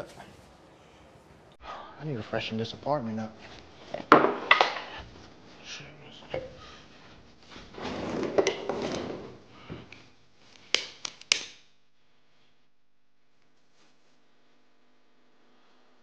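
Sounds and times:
objects rubbing and rustling: 3.2 - 11.3.

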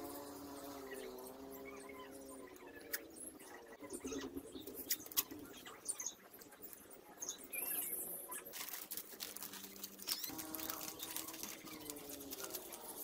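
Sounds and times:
masking tape crackling and rustling: 4.0 - 13.0
tape peeling off roll: 8.5 - 13.0.

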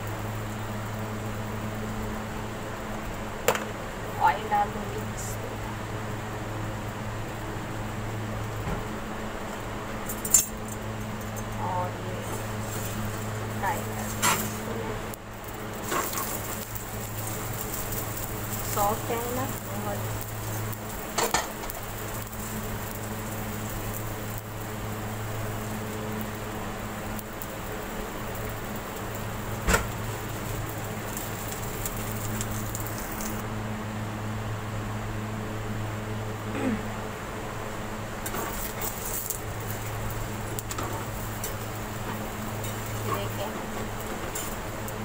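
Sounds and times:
faint hum: 0.0 - 45.0
steady low hiss: 0.0 - 45.0
metal spatula scraping griddle: 14.0 - 14.7, 15.8 - 17.9.

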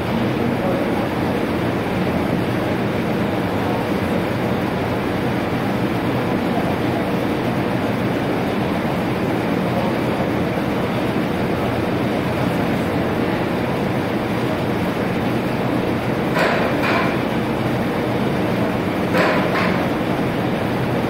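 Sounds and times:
foundry machinery rumbling: 0.0 - 21.0.

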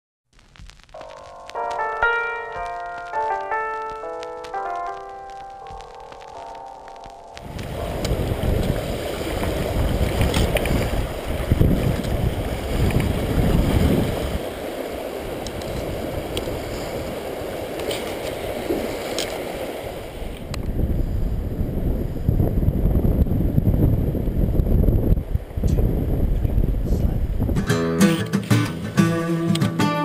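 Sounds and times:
river rushing: 7.4 - 20.5
wind buffeting microphone: 7.4 - 27.7.

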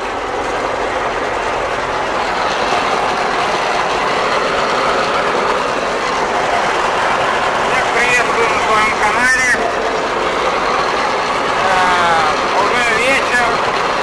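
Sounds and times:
mower engine and cutter din: 0.0 - 14.0.

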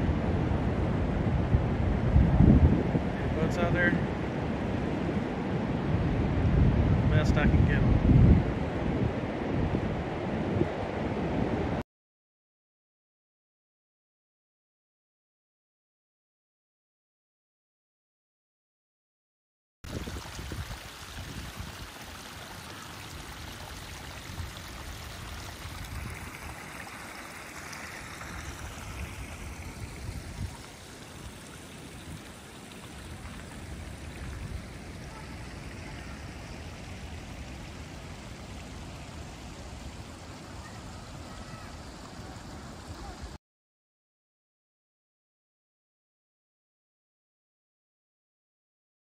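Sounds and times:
stream trickling: 19.9 - 43.4.

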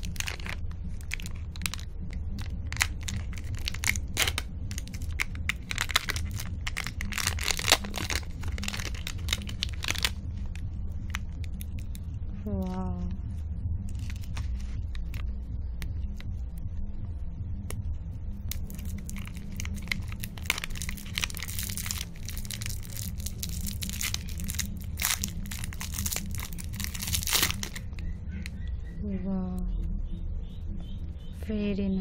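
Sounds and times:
cellophane wrapper crinkling: 0.0 - 12.0, 13.9 - 15.2, 18.5 - 28.1
low hum: 0.0 - 32.0.

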